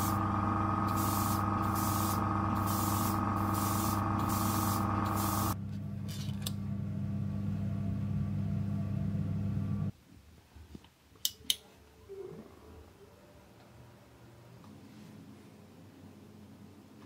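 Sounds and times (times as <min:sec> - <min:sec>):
airbrush hissing: 0:00.0 - 0:05.6
motor hum: 0:00.0 - 0:09.9.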